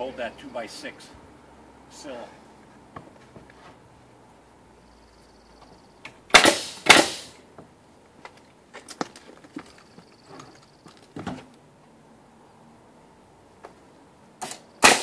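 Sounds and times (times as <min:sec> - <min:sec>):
nail gun shot with air hiss: 0:06.3 - 0:07.4, 0:14.4 - 0:15.0.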